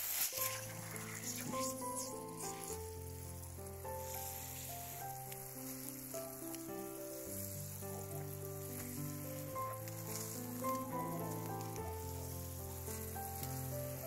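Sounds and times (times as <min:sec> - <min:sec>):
water spraying from hose: 0:00.0 - 0:14.0
background music slow notes: 0:00.2 - 0:14.0.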